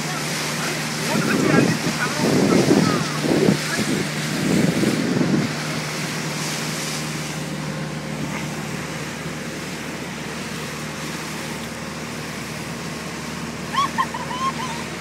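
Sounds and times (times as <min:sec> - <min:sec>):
rushing water: 0:00.0 - 0:15.0
speedboat engine drone: 0:00.0 - 0:15.0
wind on microphone: 0:01.2 - 0:05.6.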